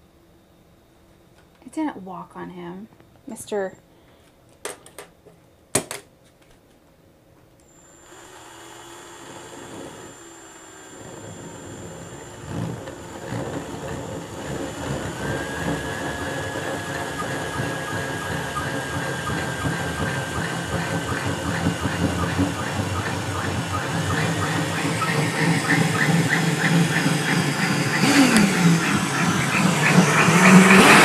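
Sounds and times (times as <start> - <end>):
thin steady whine: 7.6 - 31.0
drill grinding into stone: 7.8 - 31.0.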